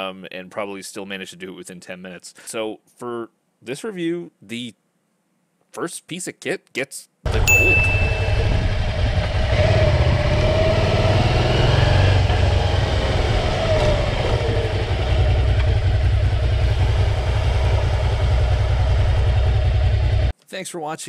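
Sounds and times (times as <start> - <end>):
motorcycle engine running: 7.3 - 20.3.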